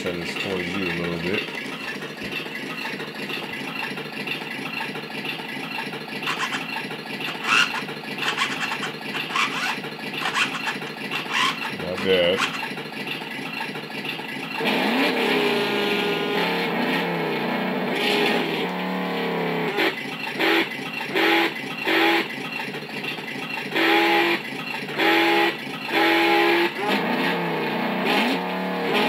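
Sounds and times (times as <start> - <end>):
short electronic revs: 6.2 - 12.7
electronic engine revving: 6.2 - 12.8, 14.5 - 22.4, 23.7 - 29.0.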